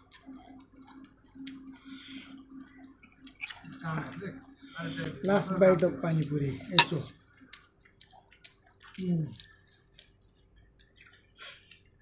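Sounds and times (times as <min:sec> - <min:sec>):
crunching and wet chewing: 0:00.0 - 0:01.9, 0:02.6 - 0:04.2, 0:06.2 - 0:12.0.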